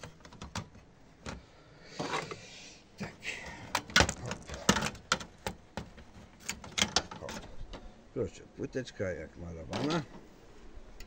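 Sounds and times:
metallic clicks and knocks: 3.7 - 7.9.

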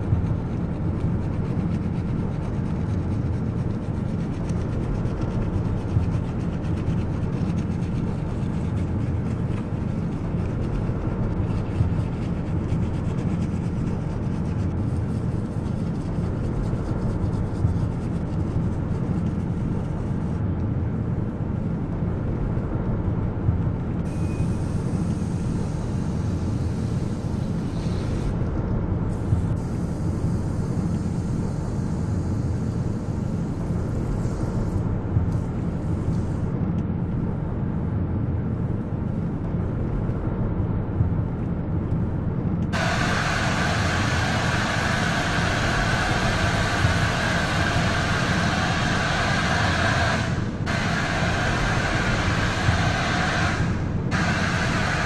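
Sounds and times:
steady low rumble: 0.0 - 55.0
brush scrubbing: 0.3 - 20.2.

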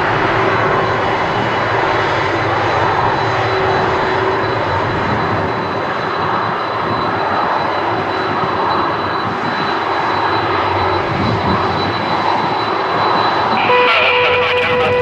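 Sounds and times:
jet engines rushing and whining: 0.0 - 15.0
second steady tone: 13.1 - 15.0.

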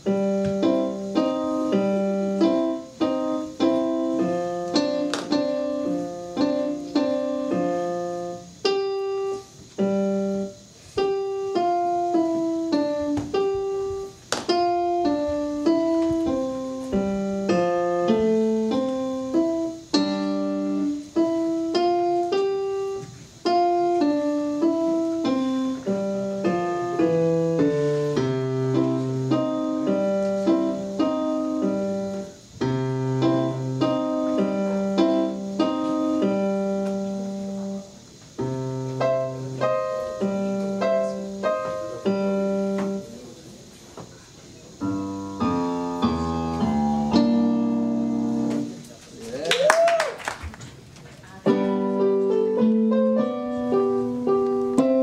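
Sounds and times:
electronic keyboard piano melody: 0.0 - 43.3, 44.8 - 48.8, 51.5 - 55.0.

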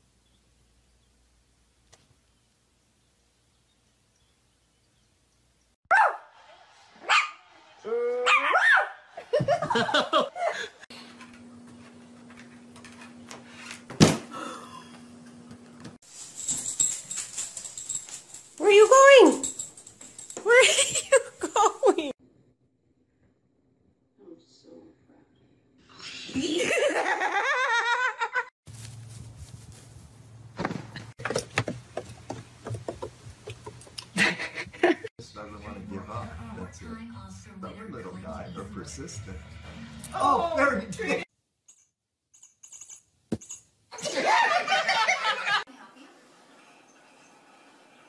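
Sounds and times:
person laughing hard: 34.1 - 35.1.

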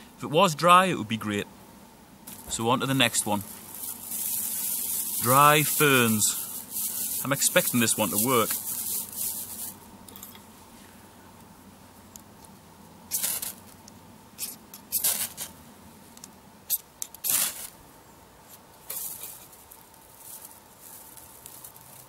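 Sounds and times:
striker scraping a fire steel: 13.1 - 13.6, 16.7 - 17.7, 18.5 - 20.5.

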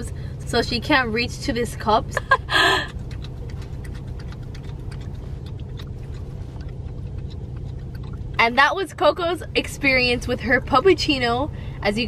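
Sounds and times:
low rumble inside car: 0.0 - 12.0
wet ticks and clicks: 2.8 - 9.7
dog licking cream: 2.9 - 8.6.

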